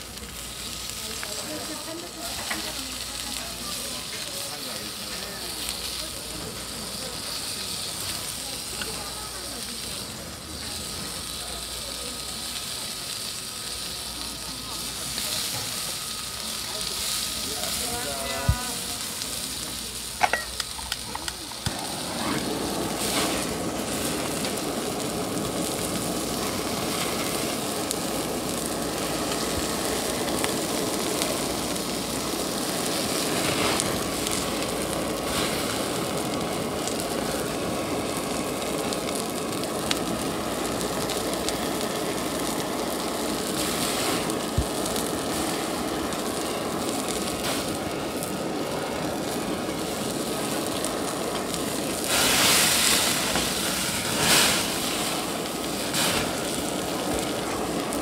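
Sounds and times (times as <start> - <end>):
gas blowtorch hissing: 0.0 - 58.0
blowtorch igniter clicks: 20.2 - 22.1.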